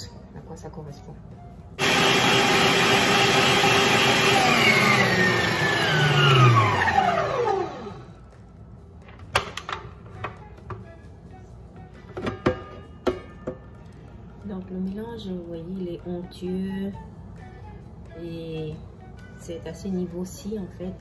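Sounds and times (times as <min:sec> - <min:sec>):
stand mixer motor whine: 0:01.8 - 0:08.1.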